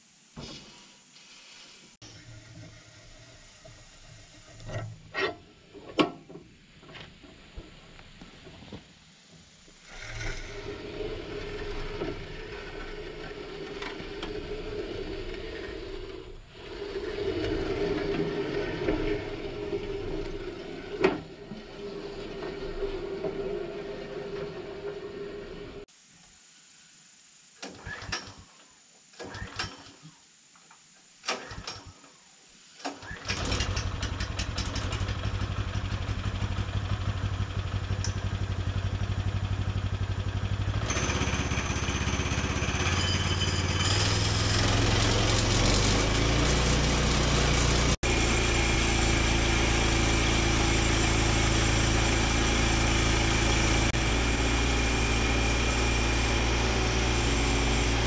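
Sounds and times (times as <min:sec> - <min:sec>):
small gasoline engine running: 0:09.8 - 0:21.0, 0:33.2 - 0:58.0.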